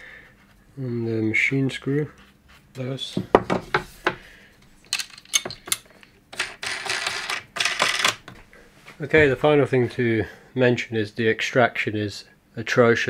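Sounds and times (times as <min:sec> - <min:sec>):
small metal hardware clinking: 0:04.9 - 0:05.9.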